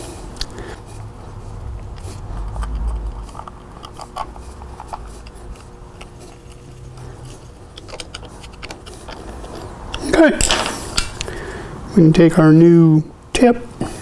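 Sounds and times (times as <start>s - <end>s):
screwdriver clicks and scrapes: 2.0s - 11.3s.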